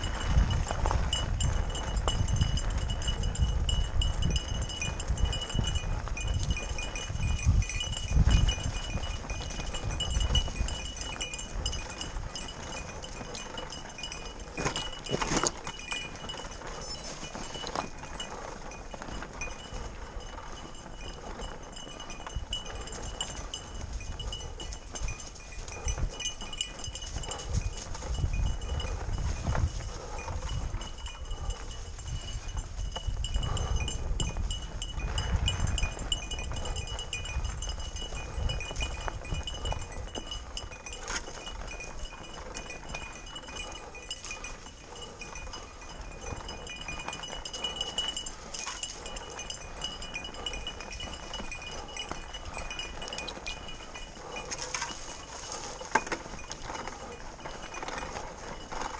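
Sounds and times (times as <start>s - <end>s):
bike tyres rattling over stones: 0.0s - 58.9s.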